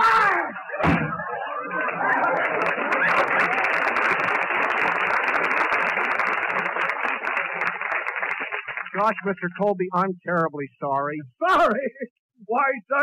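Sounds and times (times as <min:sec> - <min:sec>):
audience laughing: 0:00.5 - 0:07.6, 0:11.4 - 0:12.1
audience clapping: 0:01.4 - 0:09.8.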